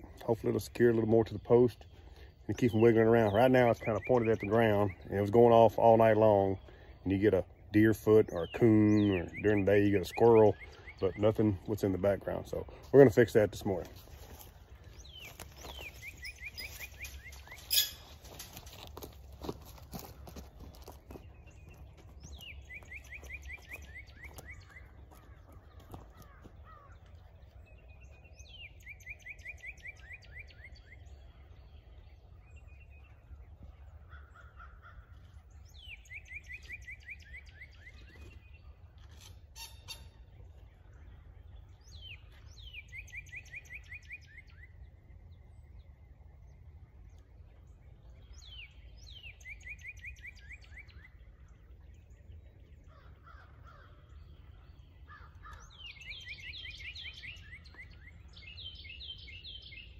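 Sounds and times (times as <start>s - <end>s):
songbird singing: 0.0s - 59.9s.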